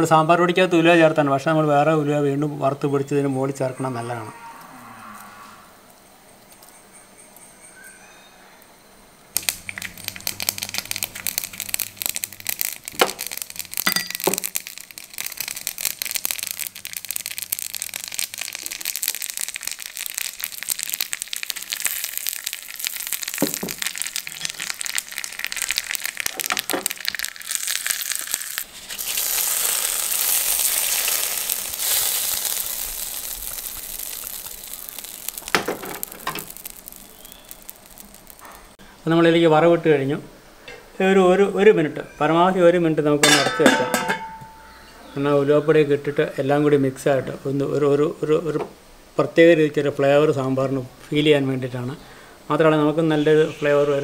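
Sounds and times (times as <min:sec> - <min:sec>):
loud sizzling hiss: 0:09.2 - 0:54.0
seeds crackling in hot oil: 0:09.3 - 0:38.9, 0:43.2 - 0:45.2.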